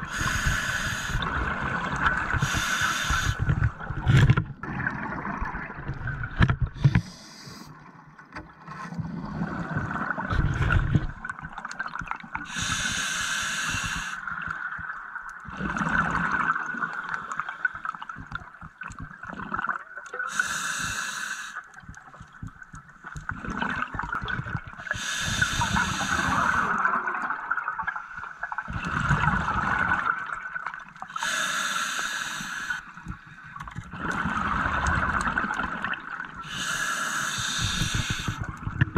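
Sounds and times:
steady underwater hiss: 0.0s - 3.7s, 6.8s - 7.8s, 12.4s - 14.4s, 20.2s - 21.7s, 24.8s - 27.0s, 31.1s - 33.5s, 36.4s - 38.6s
exhaled bubbles rumbling: 0.0s - 6.9s, 9.0s - 12.4s, 14.4s - 17.4s, 21.8s - 28.0s, 28.6s - 31.0s, 33.0s - 36.6s, 37.4s - 38.9s
regulator inhalation hiss: 0.1s - 1.2s, 2.4s - 3.4s, 7.0s - 7.7s, 12.5s - 14.2s, 20.3s - 21.6s, 24.9s - 26.8s, 31.2s - 32.9s, 36.4s - 38.4s.

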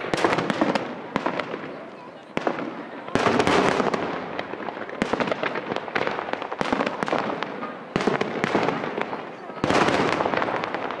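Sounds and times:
sharp firework bangs: 0.0s - 1.8s, 2.4s - 11.0s
fireworks bursting and crackling: 0.0s - 11.0s.

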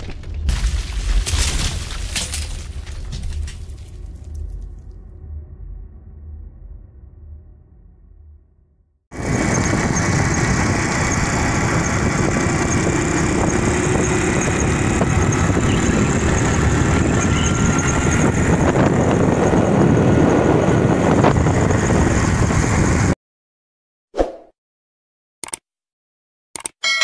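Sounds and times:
motorcycle engine running: 9.1s - 23.1s
road and air noise: 9.1s - 23.2s.

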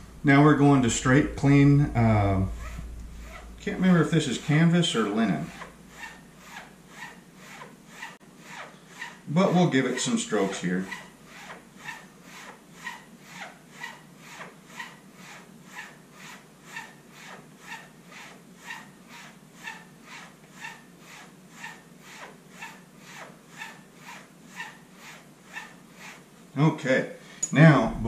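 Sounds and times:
razor swishing on strop: 0.0s - 26.3s.

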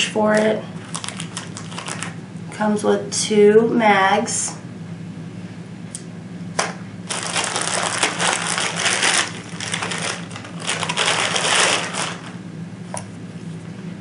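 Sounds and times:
plastic bag crinkling: 0.8s - 2.2s, 7.0s - 12.4s.

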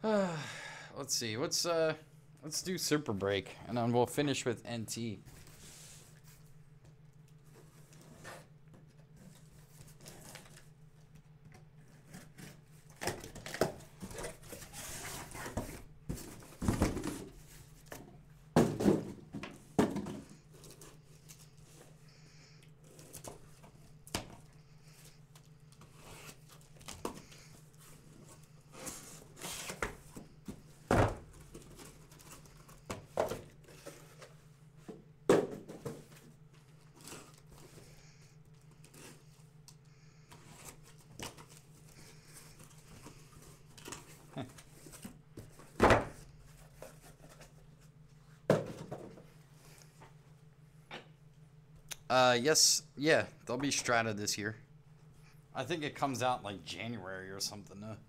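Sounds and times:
cardboard scraping and rustling: 11.9s - 18.0s
sharp knocks of boxes handled: 18.0s - 20.4s, 35.3s - 36.2s.

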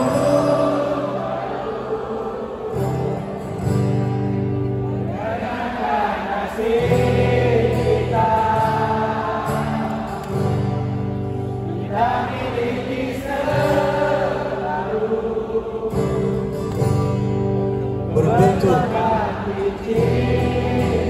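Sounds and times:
person singing: 0.0s - 3.1s
acoustic guitar: 0.0s - 21.0s
crowd singing along: 0.0s - 21.0s.

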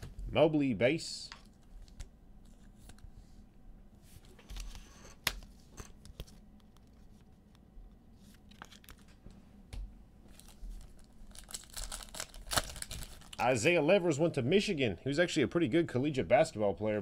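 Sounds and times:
wrappers rustling and tearing: 10.3s - 13.4s.

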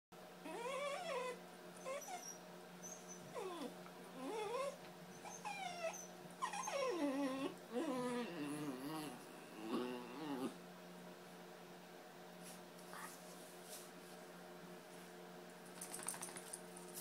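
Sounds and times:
steady low hum: 0.2s - 17.0s
puppy whining and grumbling: 0.4s - 10.6s.

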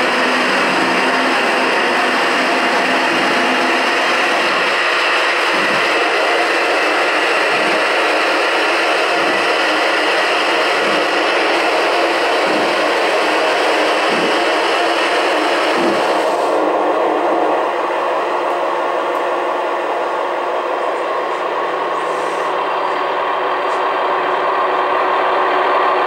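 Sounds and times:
steam hissing: 0.0s - 17.8s.

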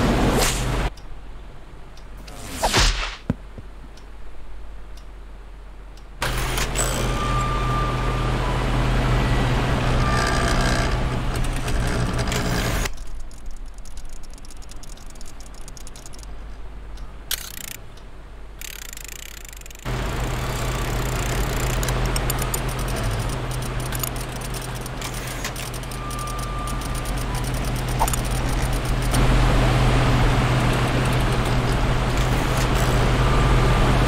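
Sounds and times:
quick whoosh: 2.2s - 3.2s
electric fan running: 5.2s - 13.3s, 13.9s - 34.0s.

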